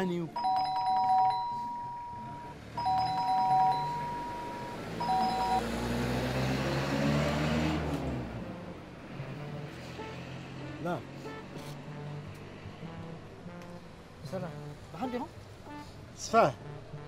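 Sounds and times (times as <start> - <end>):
electronic doorbell ringing: 0.3 - 5.8.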